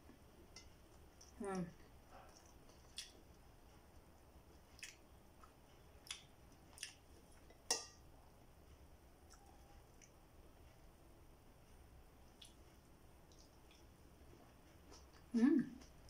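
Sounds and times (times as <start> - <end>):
person chewing food: 2.0 - 7.9, 12.3 - 16.0
wet mouth clicks and smacks: 4.8 - 7.0.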